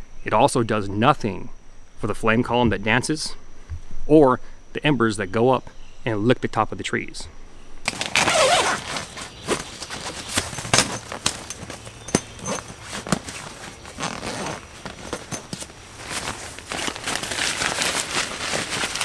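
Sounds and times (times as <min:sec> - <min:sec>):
zip being drawn open: 0:07.9 - 0:09.6, 0:13.9 - 0:15.2
tent fabric rustling: 0:07.9 - 0:19.0.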